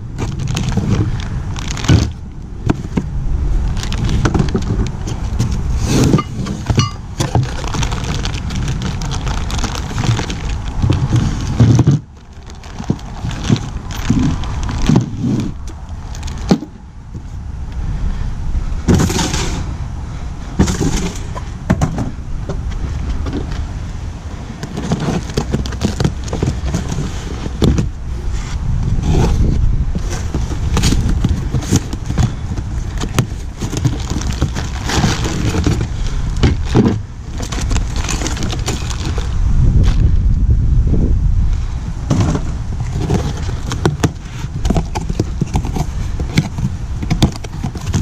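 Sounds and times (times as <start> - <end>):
cardboard and plastic rustling: 0.0 - 17.4, 20.6 - 40.2, 42.0 - 48.0
low rumble: 35.7 - 43.7.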